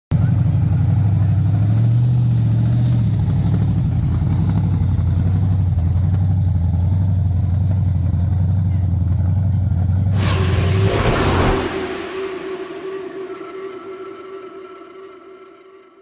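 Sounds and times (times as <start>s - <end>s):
car engine idling: 0.2s - 10.2s.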